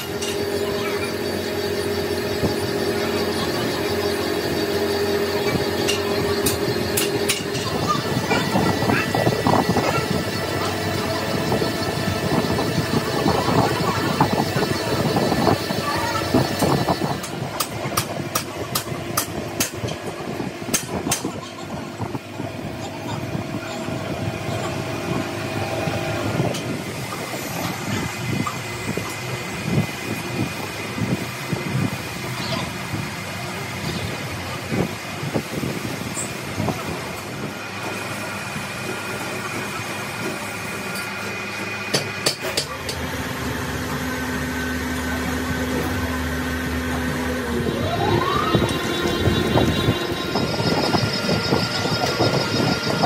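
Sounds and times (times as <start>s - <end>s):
held tone: 0.0s - 17.3s
grinding machine humming: 0.0s - 53.0s.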